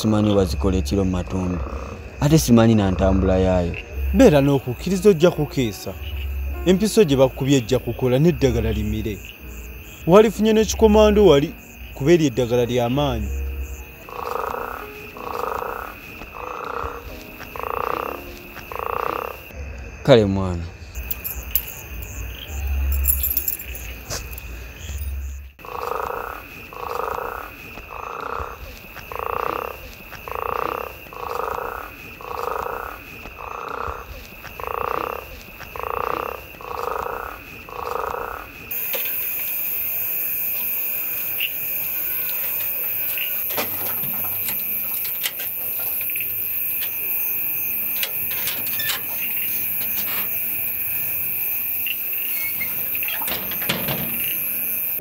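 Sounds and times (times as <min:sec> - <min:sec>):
frogs croaking: 0:00.0 - 0:55.0
dense high hiss: 0:02.2 - 0:16.2.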